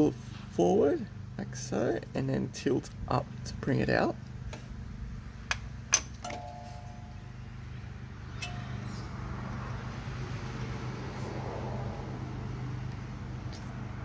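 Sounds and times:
short bell-like ring: 6.3s - 7.2s.

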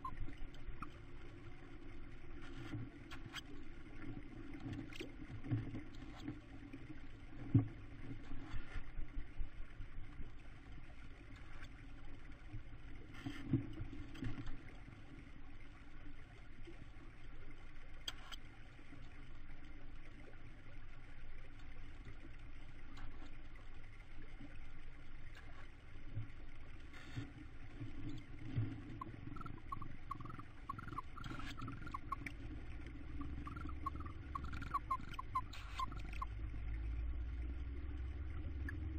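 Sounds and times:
steady low rumble: 26.0s - 38.9s.

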